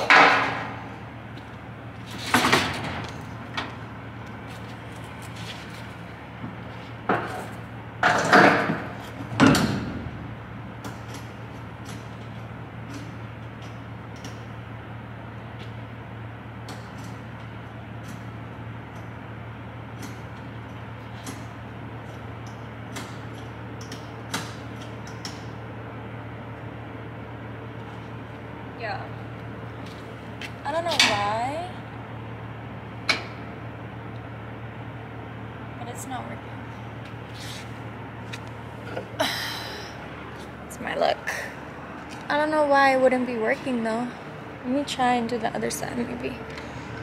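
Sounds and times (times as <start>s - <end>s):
metal clunks and bangs: 0.0s - 0.8s, 8.0s - 10.4s
steady low hum: 0.0s - 47.0s.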